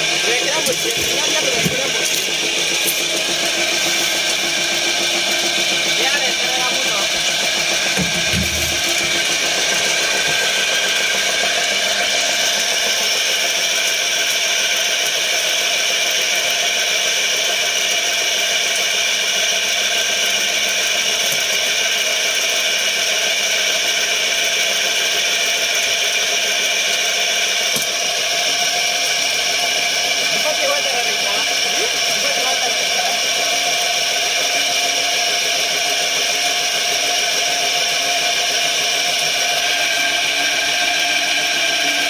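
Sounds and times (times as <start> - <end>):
extruder machine humming and whining: 0.0 - 42.0.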